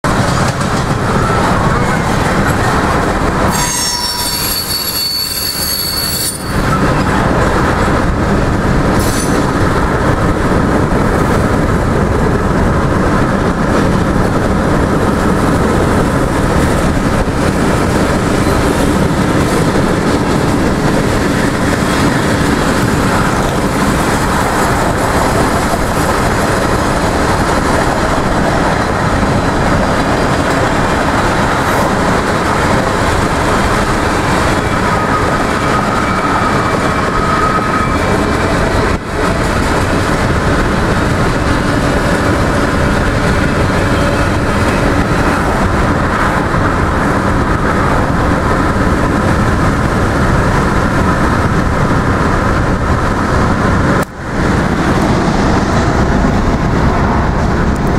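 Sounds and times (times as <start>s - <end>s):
steel wheels running on rails: 0.0s - 57.9s
high wheel squeal: 3.5s - 7.0s.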